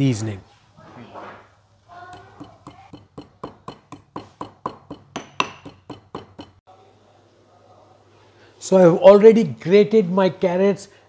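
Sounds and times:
stone pestle pounding in mortar: 2.1 - 6.6.

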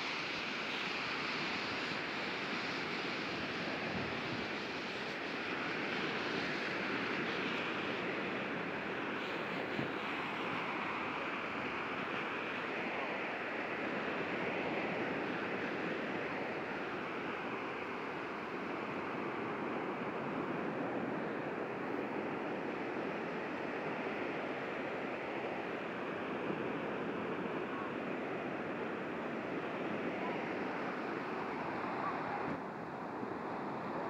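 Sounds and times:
surf rushing: 0.0 - 34.0.

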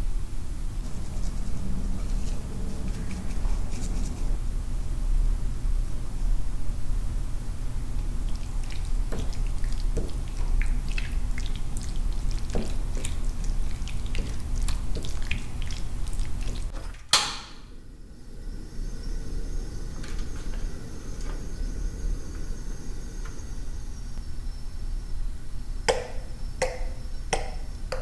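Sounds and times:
low steady hum: 0.0 - 28.0
liquid drips and clicks: 8.0 - 16.7.

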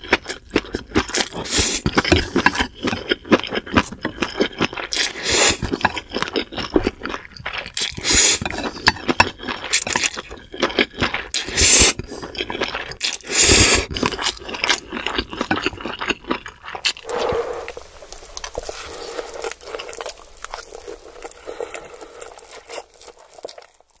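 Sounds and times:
wet chewing and crunching: 0.0 - 24.0
loud noodle slurping: 1.3 - 2.4, 4.9 - 6.0, 7.8 - 10.3, 11.2 - 15.4, 16.4 - 22.9.

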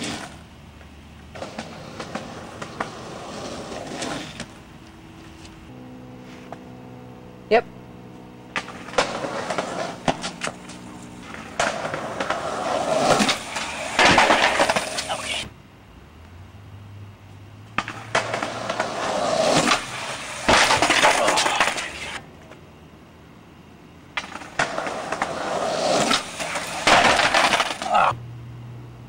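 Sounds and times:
skateboard rolling on pavement: 0.0 - 28.2
skateboard clacks and bangs: 1.3 - 4.5, 8.6 - 15.3, 17.8 - 22.2, 24.1 - 28.0.

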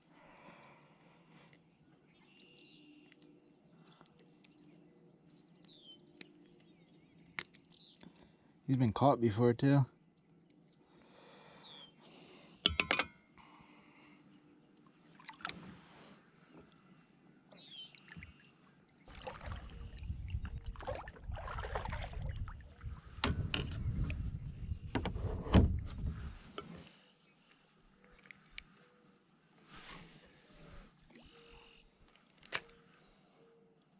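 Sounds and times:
bird chirping: 2.1 - 8.0, 17.5 - 19.2.

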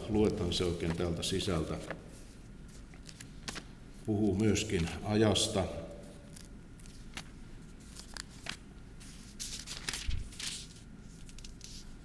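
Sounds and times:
paper pages rustling: 0.1 - 3.7, 6.2 - 12.0.

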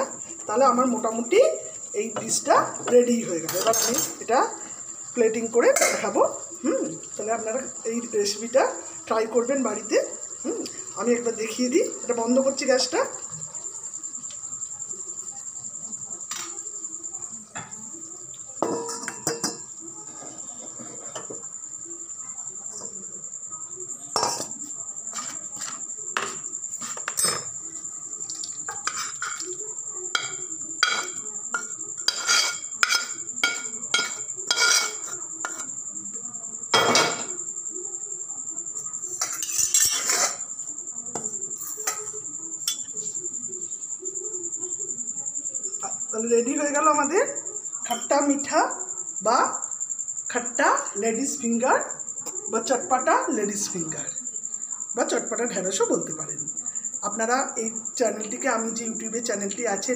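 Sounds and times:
metal spoon clinking and scraping: 0.8 - 7.6, 18.6 - 21.4, 24.1 - 27.6, 28.2 - 35.8, 39.1 - 43.1.

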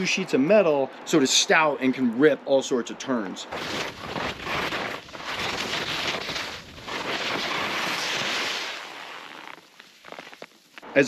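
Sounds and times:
skis carving on snow: 3.5 - 10.8.

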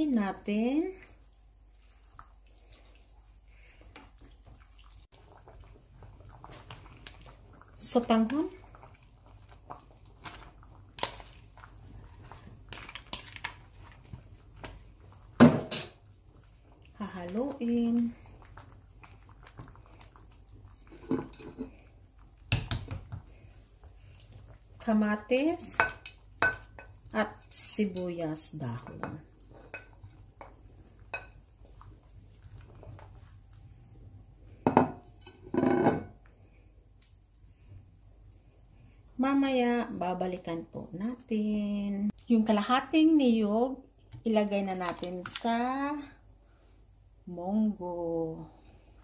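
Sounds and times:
wooden spoon stirring soup: 0.0 - 39.2
stew boiling: 0.0 - 49.0
noodles popping and crackling: 8.6 - 21.0.

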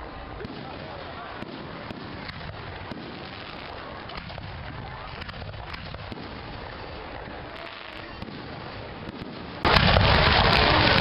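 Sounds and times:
firework sparks crackling: 0.0 - 11.0
fireworks popping: 0.0 - 11.0.

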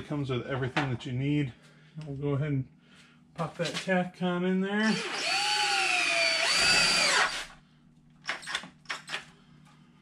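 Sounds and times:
power drill motor whine: 4.8 - 7.6.

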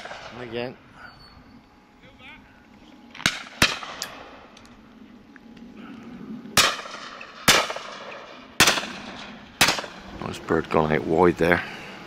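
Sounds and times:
shotgun shots with echo: 3.2 - 4.2, 6.6 - 10.0.

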